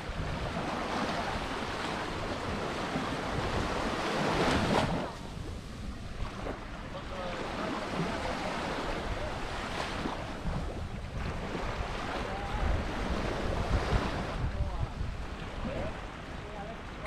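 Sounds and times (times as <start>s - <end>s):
waves washing onto beach: 0.0s - 17.0s
wind gusting on microphone: 0.0s - 17.0s
faint voices: 6.8s - 9.8s.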